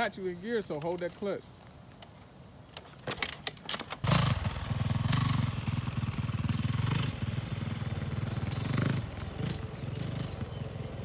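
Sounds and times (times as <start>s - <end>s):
dirt bike engine revving: 4.0s - 11.0s.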